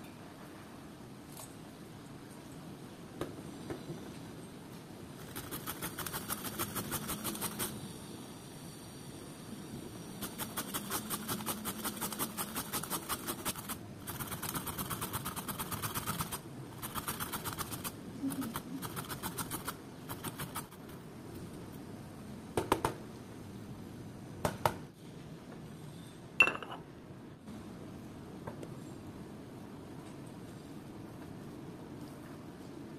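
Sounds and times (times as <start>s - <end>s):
papaya grated on plastic grater: 5.2s - 7.7s, 10.2s - 20.8s.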